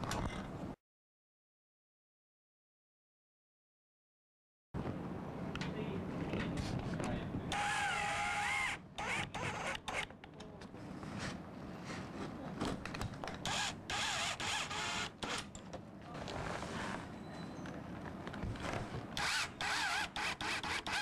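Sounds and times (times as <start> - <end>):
cordless drill driving screws: 7.5 - 10.1, 13.4 - 15.5, 19.2 - 21.0.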